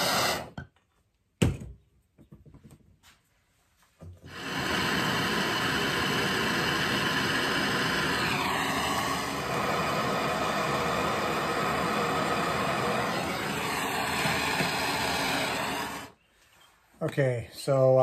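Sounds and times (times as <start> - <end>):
gas torch flame hissing: 0.0 - 0.6, 4.2 - 16.2.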